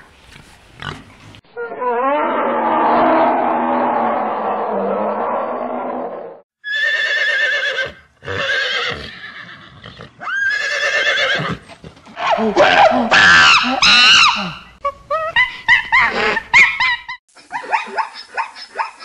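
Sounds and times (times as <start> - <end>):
low drawn-out animal call: 1.5 - 7.8
horse neighing: 6.6 - 14.4.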